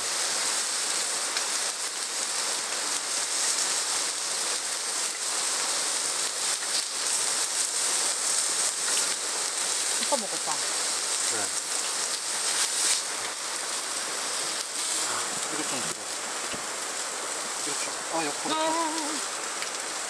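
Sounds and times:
spattering crackles: 0.0 - 20.0
steak sizzling on griddle: 0.0 - 20.0.

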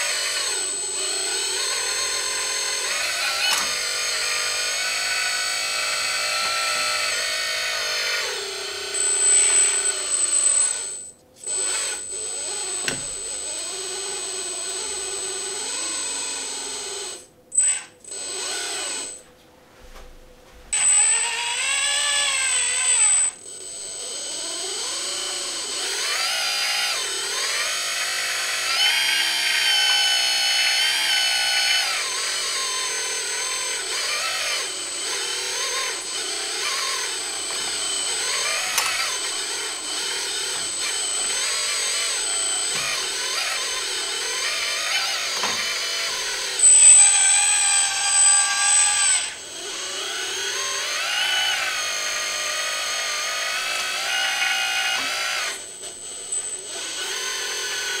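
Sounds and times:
hydraulic pump whining: 0.0 - 19.2, 20.7 - 58.0.

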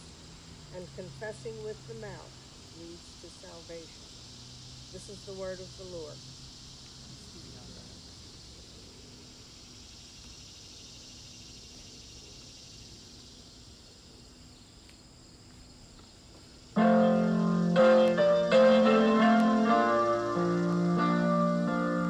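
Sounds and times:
faint steady high hiss: 0.0 - 22.0
electric keyboard piano chords: 16.8 - 22.0.

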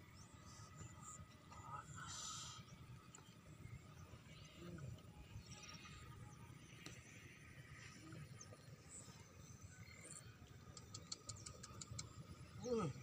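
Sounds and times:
faint high-pitched ticks: 9.2 - 12.4.

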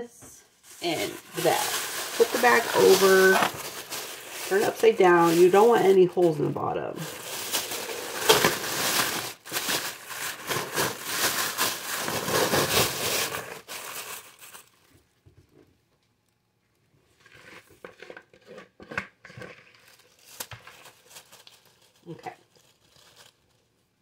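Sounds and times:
soft plastic rustles: 0.2 - 24.0
plastic bag crinkling: 0.6 - 14.9, 19.2 - 24.0.

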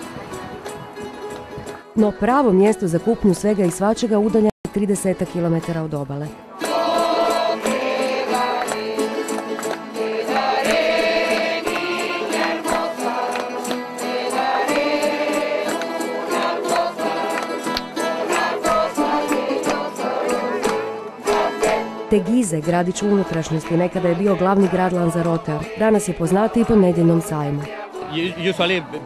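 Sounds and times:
strummed guitars: 0.0 - 29.0
folk group singing in chorus: 6.5 - 22.1, 22.8 - 29.0
tambourine beating time: 6.7 - 21.9.

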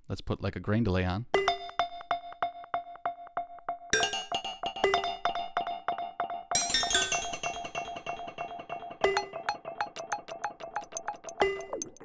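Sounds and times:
stuttering synthetic tone: 9.0 - 12.0.

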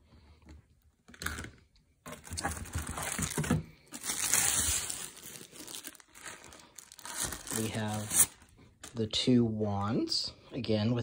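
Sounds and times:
plastic packaging crinkling: 2.1 - 9.1.

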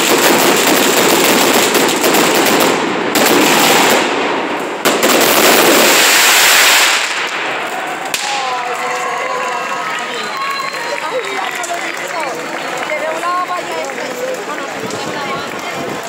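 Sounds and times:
sharp firework bangs: 0.0 - 8.4
firecrackers crackling: 0.0 - 16.0.

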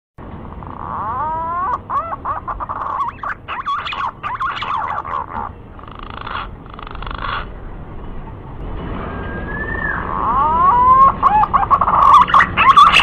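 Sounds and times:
pigeon whistling song: 0.7 - 7.5, 9.1 - 13.0.

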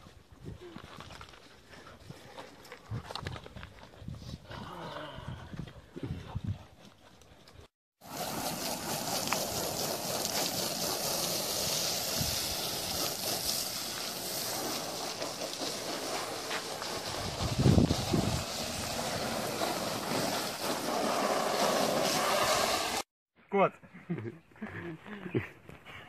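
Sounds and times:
wind rumble on microphone: 2.0 - 6.8, 17.0 - 19.0
garden hose spraying water: 8.0 - 23.1.

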